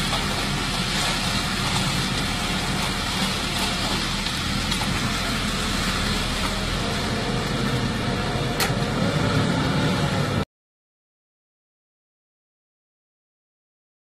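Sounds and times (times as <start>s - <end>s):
diesel engine running: 0.0s - 10.4s.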